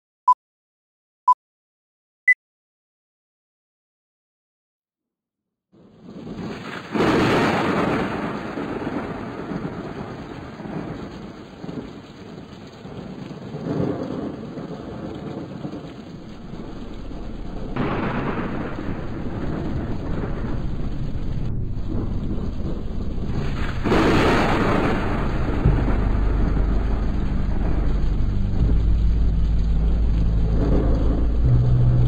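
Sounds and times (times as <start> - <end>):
dense rumbling noise with hiss: 16.2 - 32.0.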